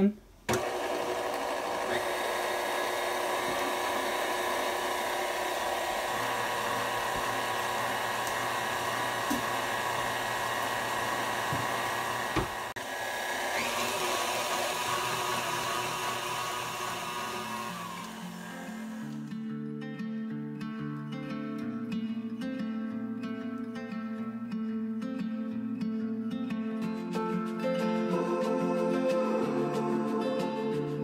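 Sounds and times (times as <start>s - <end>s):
stand mixer motor running: 0.5s - 19.2s.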